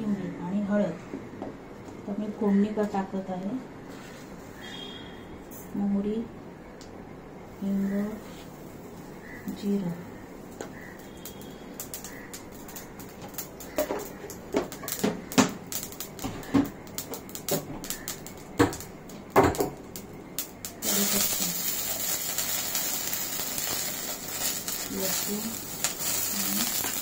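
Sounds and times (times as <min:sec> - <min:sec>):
steady sizzle of oil: 0:05.5 - 0:27.0
mustard seeds popping in oil: 0:10.4 - 0:27.0.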